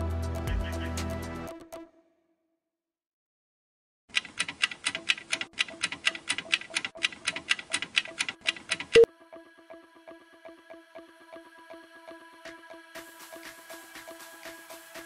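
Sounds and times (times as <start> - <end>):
fast clock ticking: 4.1 - 9.1.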